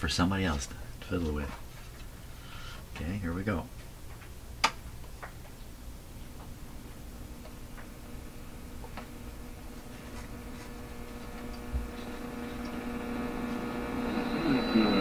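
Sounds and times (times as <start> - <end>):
radio hum and hiss: 6.2 - 15.0
radio static: 11.6 - 15.0
high whistle: 13.6 - 15.0.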